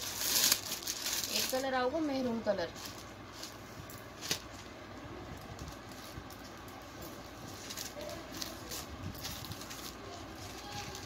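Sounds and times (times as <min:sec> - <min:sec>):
satin fabric rustling: 0:02.4 - 0:04.7.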